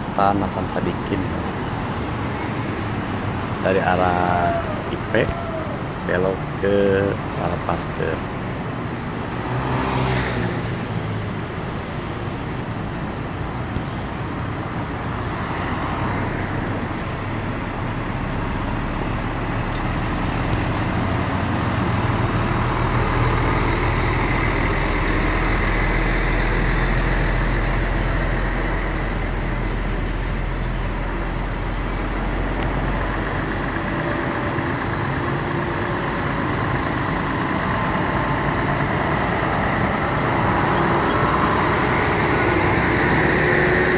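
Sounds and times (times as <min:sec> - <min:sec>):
road noise: 0:00.0 - 0:43.9
truck engine rumble: 0:00.0 - 0:43.9.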